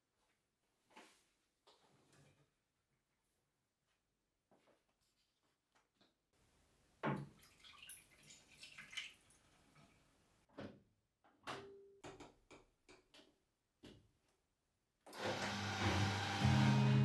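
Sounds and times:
liquid pouring and dripping: 0:07.1 - 0:10.2.

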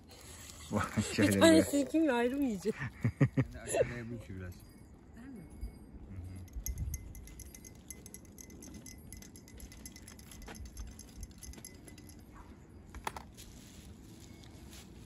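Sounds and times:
faint metallic jingling: 0:03.5 - 0:15.0.

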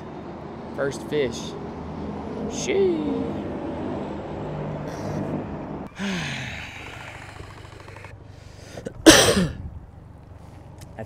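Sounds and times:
man sighing: 0:05.9 - 0:07.4.

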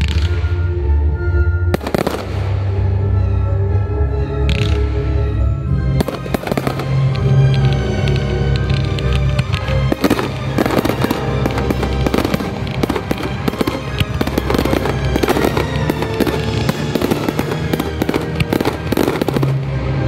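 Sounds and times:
background music: 0:00.0 - 0:20.0
firework shells bursting: 0:06.0 - 0:19.7.

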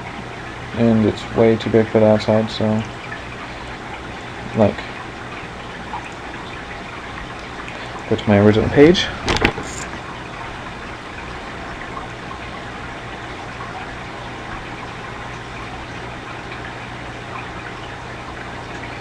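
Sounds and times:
microphone background hiss: 0:07.9 - 0:10.1.

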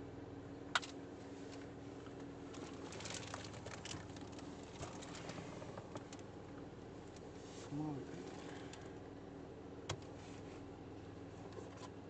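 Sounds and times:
steady low hum: 0:00.0 - 0:12.0
handling clicks and rustles: 0:00.8 - 0:07.3.

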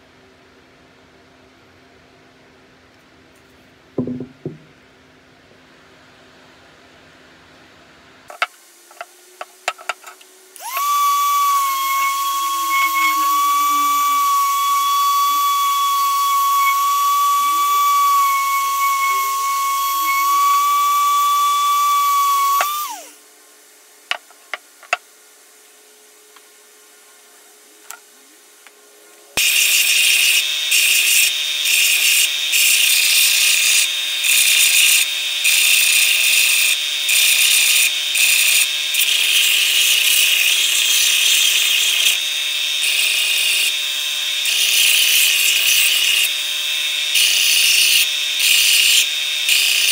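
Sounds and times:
belt sander grinding steel: 0:09.7 - 0:23.1, 0:29.4 - 0:49.9
detail sander whining: 0:10.6 - 0:23.2.

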